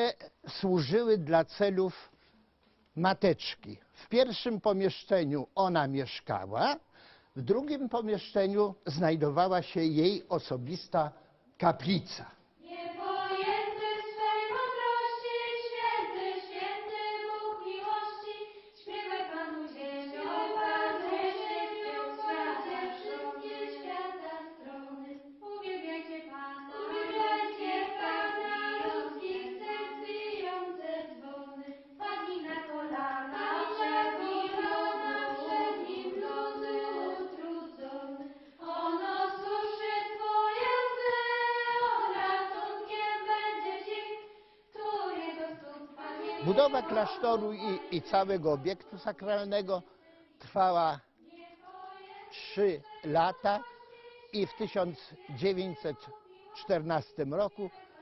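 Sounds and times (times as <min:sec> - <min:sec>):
choir of high voices singing: 0:12.6 - 0:58.0.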